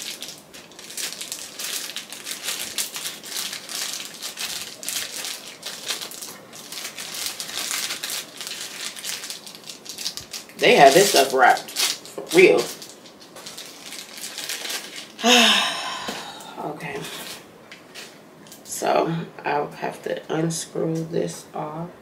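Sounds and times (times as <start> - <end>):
packaging crinkling: 0.0 - 15.4.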